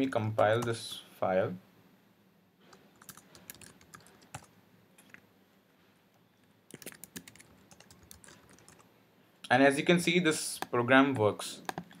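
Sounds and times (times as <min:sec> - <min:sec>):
typing on computer keyboard: 0:02.7 - 0:05.2, 0:06.7 - 0:08.8, 0:10.6 - 0:12.0.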